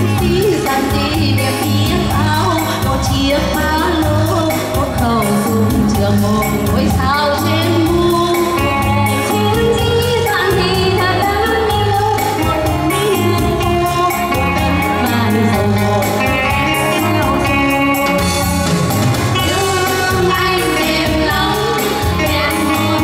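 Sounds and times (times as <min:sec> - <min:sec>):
instrumental accompaniment with beat: 0:00.0 - 0:23.0
female vocal trio singing: 0:19.4 - 0:23.0.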